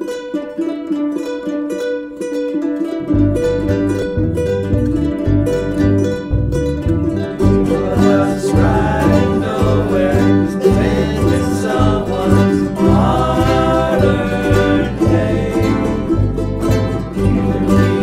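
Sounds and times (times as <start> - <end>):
ukuleles strumming chords: 0.0 - 18.0
electric bass guitar: 3.0 - 18.0
voices singing together: 7.4 - 18.0.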